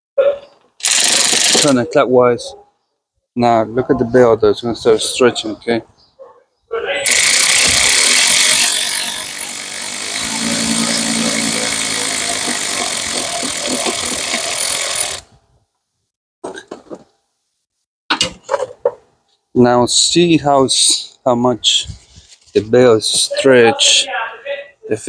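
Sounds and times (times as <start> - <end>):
power tool running: 0.8 - 1.7, 7.1 - 15.3.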